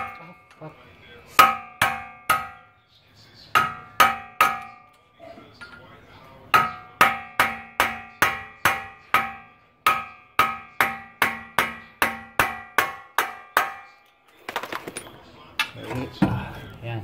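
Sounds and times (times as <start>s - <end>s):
hammer striking metal axle: 1.3s - 2.7s, 3.5s - 5.0s, 6.5s - 14.2s.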